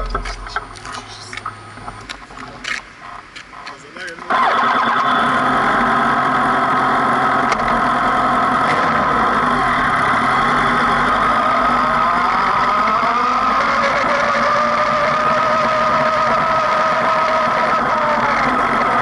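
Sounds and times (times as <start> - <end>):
motorcycle engine idling and pulling away: 5.0 - 19.0.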